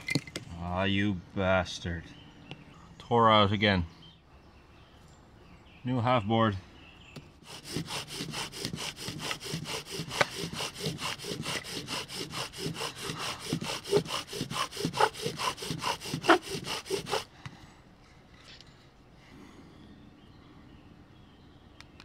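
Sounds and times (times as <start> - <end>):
bow drill spindle grinding wood: 7.4 - 17.3.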